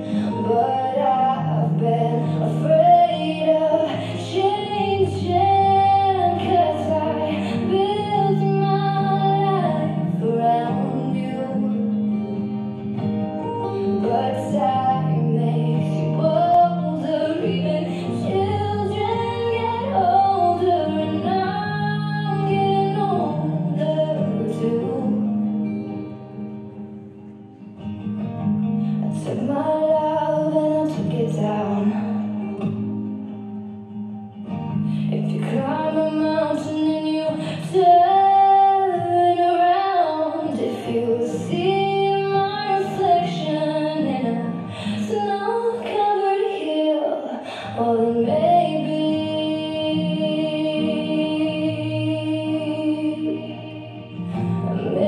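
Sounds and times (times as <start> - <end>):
woman singing ballad: 0.0 - 26.4, 28.7 - 33.1, 33.9 - 55.0
acoustic guitar: 0.0 - 55.0.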